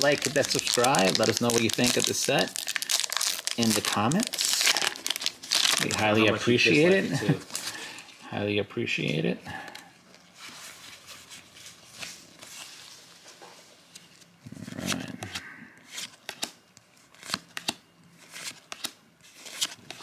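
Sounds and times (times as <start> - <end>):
cards rustling and snapping: 0.0 - 6.1, 14.8 - 20.0.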